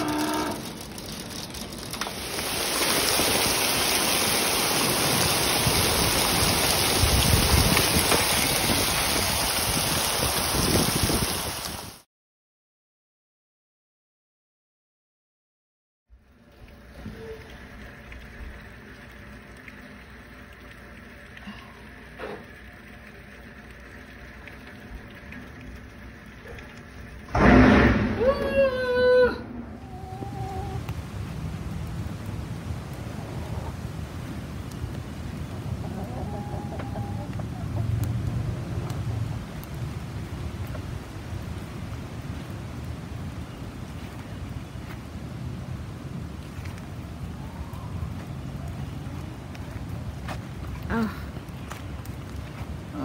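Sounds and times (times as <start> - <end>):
hail and heavy rain on wood: 0.0 - 12.0
heavy rain and hail: 0.0 - 12.0, 27.2 - 29.0, 30.8 - 36.1, 37.9 - 53.0
loud boom: 27.3 - 28.7.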